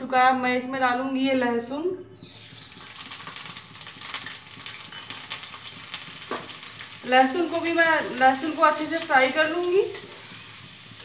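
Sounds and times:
garlic sizzling in hot oil: 2.2 - 11.0
oil spatter pops: 2.6 - 7.0.

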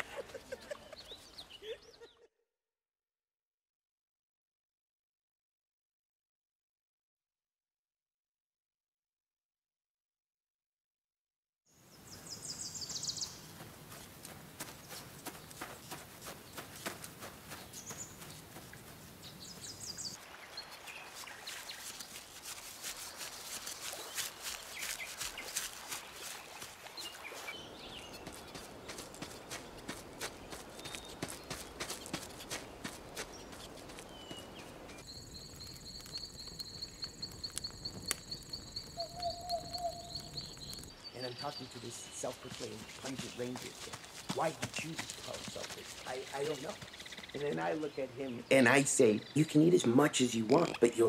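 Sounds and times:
bird chirps: 11.9 - 14.0, 14.7 - 51.0
campfire crackling: 12.1 - 51.0
footsteps through grass and leaves: 12.5 - 35.1, 40.4 - 47.8
crickets chirping: 28.2 - 41.0
lower insect trill: 34.9 - 40.9.

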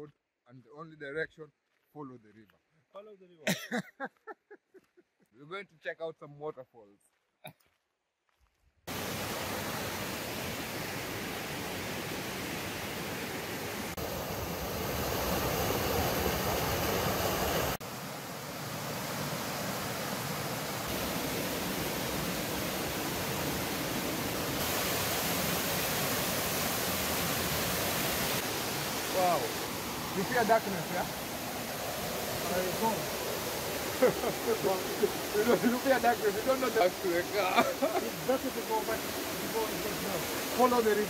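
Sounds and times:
waterfall rushing: 8.9 - 41.0.

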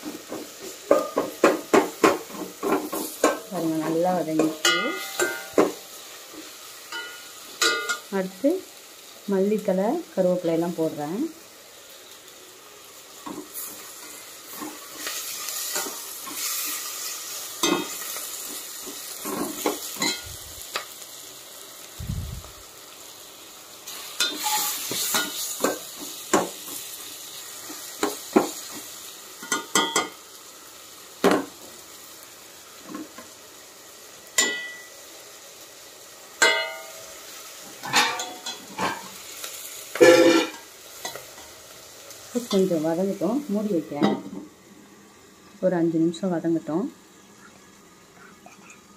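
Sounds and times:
onions sizzling in hot oil: 0.0 - 48.2.

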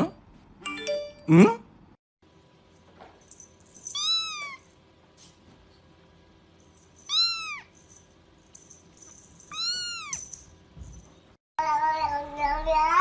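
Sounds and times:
kitten meowing: 3.9 - 4.6, 7.1 - 7.7, 9.5 - 10.3.

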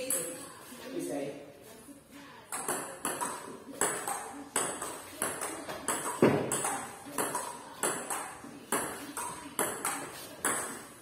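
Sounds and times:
ping pong ball hits: 2.5 - 11.0.

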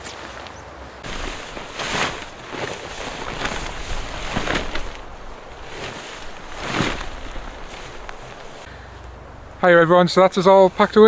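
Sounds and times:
steady low rumble: 1.0 - 9.6.

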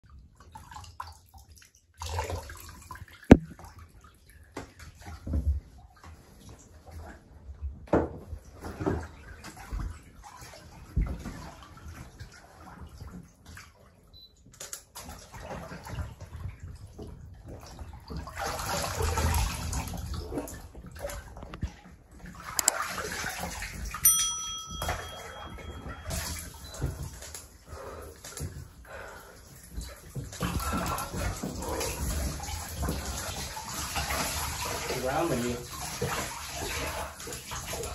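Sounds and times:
water splashing in bathtub: 0.0 - 37.9
high-pitched tone: 24.1 - 26.5.

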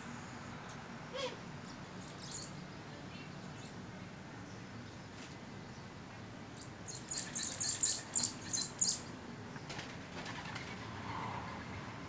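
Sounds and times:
bird chirping: 2.0 - 3.8, 6.6 - 9.1.

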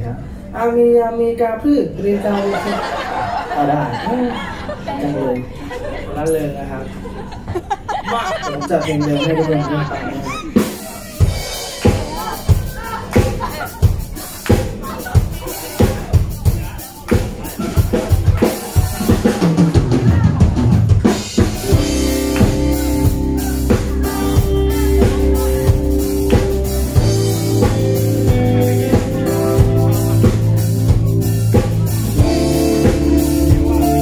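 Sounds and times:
keyboard: 5.8 - 34.0
drumming: 7.4 - 34.0
electric guitar: 10.4 - 34.0.

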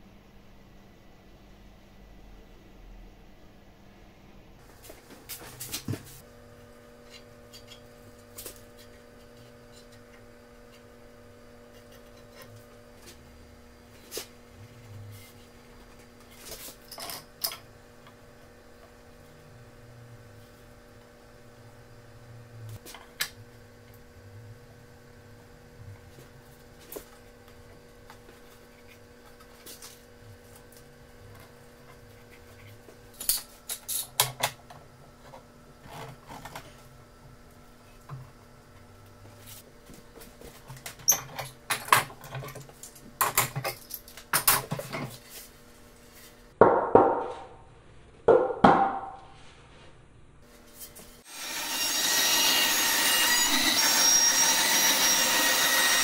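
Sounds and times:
bandsaw running with whining hum: 6.2 - 41.6, 50.8 - 56.0.

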